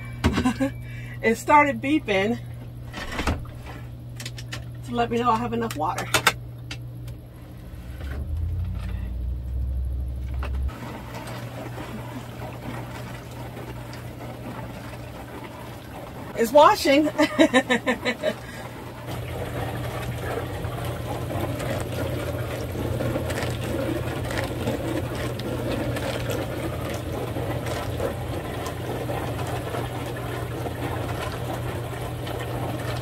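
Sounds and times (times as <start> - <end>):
dishwasher pump hum: 0.0 - 33.0
water spraying inside: 8.2 - 33.0.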